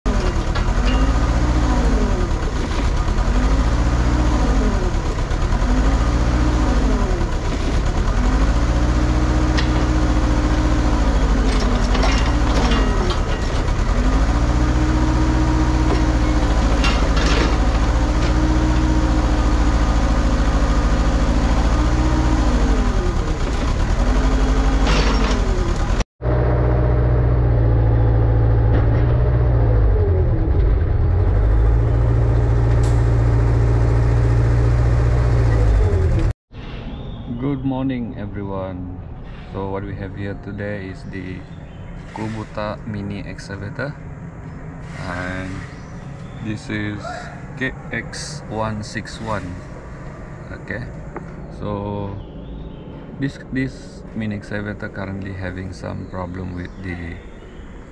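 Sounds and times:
excavator diesel engine labouring: 0:00.0 - 0:36.3, 0:39.0 - 0:57.9
sharp metallic clanks: 0:00.1 - 0:01.8, 0:08.8 - 0:19.8, 0:23.4 - 0:26.0.

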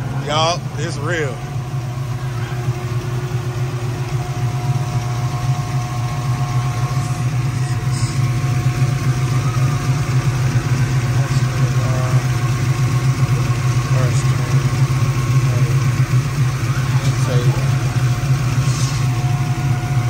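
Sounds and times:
engine idling: 0:00.0 - 0:20.0.

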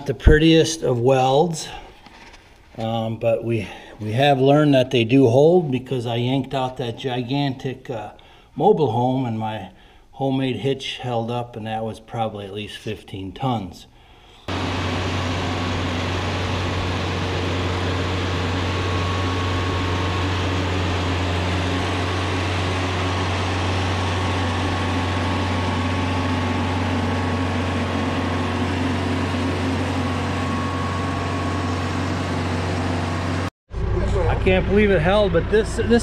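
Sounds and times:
tractor diesel engine droning: 0:14.5 - 0:36.0.

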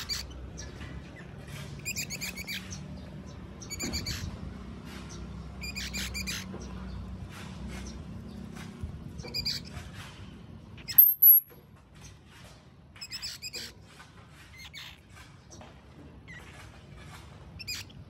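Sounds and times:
baby squirrels squeaking: 0:00.0 - 0:00.8, 0:01.7 - 0:03.0, 0:03.6 - 0:04.4, 0:05.1 - 0:06.6, 0:09.2 - 0:09.8, 0:10.8 - 0:11.5, 0:13.0 - 0:13.7, 0:14.5 - 0:15.0, 0:17.6 - 0:18.0.

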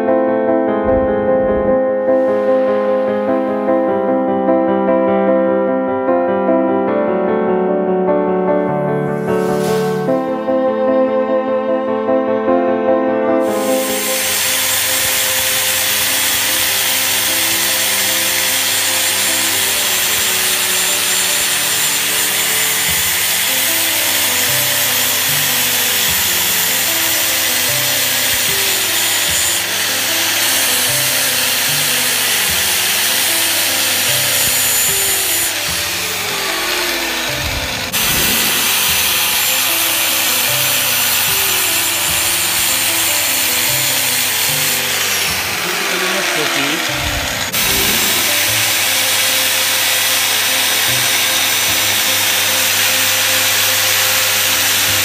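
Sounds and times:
tune playing: 0:00.7 - 0:05.1, 0:08.5 - 0:15.7, 0:19.0 - 0:50.8
angle grinder grinding steel: 0:01.1 - 0:04.1, 0:08.9 - 0:10.8, 0:13.4 - 0:55.0.

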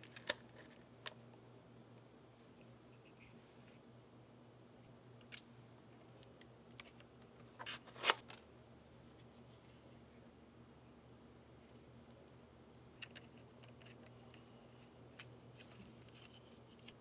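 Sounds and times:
small plastic parts clicking: 0:13.0 - 0:14.4.

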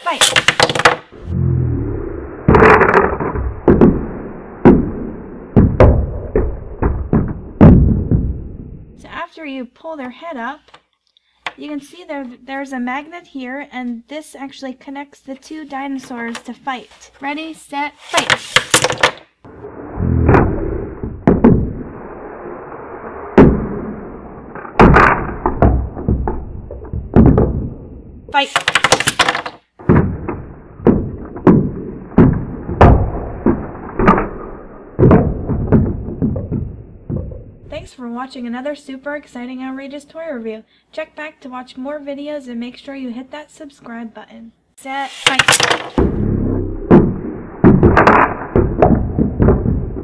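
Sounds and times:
sharp hollow knocks: 0:02.5 - 0:08.7, 0:20.2 - 0:21.8, 0:24.6 - 0:37.7, 0:46.9 - 0:50.0
plastic toys clacking together: 0:28.4 - 0:29.6, 0:45.2 - 0:46.0.

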